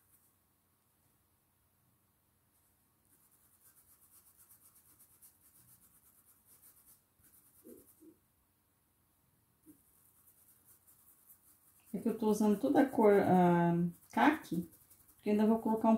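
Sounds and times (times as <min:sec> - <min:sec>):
paintbrush scrubbing fabric: 0:00.0 - 0:00.4, 0:02.6 - 0:08.2, 0:09.7 - 0:15.9.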